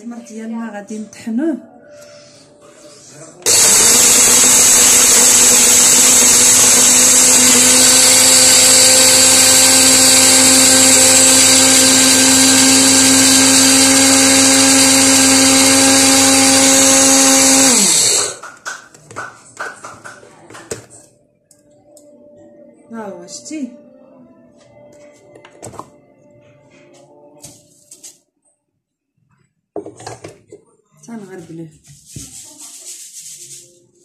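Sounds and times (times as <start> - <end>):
electric blender grinding: 3.4 - 18.5.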